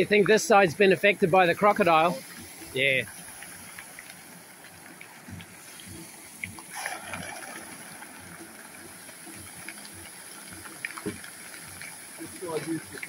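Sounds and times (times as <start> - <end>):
small water plops: 3.1 - 13.0
fish splashing at surface: 3.2 - 12.0.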